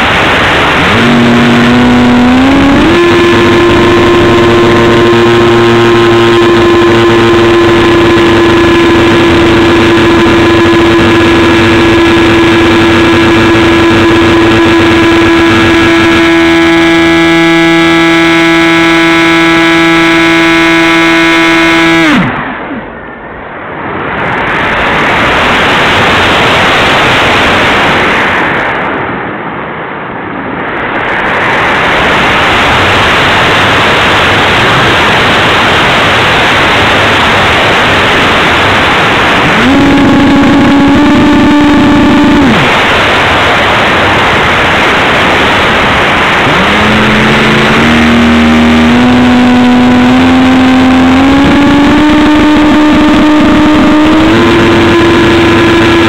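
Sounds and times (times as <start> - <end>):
electric motor whine: 0.0 - 22.4, 36.0 - 56.0
rushing airflow over mic: 31.0 - 56.0.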